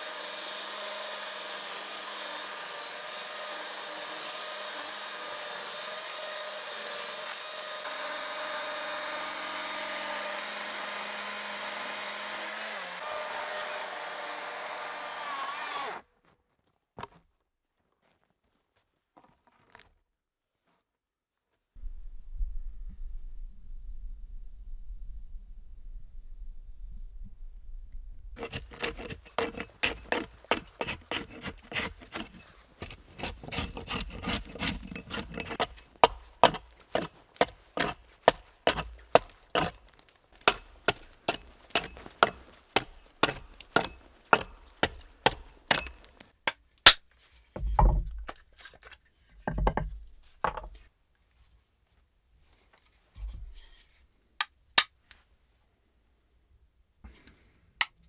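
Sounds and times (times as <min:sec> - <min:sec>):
axe chopping a log: 0:28.4 - 0:47.0.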